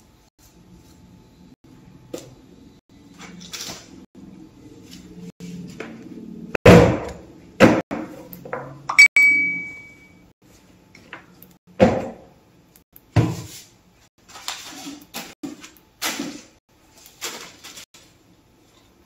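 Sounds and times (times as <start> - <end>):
ringing clink: 9.0 - 10.2.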